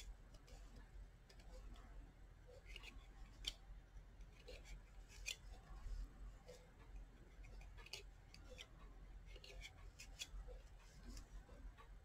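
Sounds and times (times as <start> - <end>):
loom hook clicks and scrapes: 4.2 - 11.9.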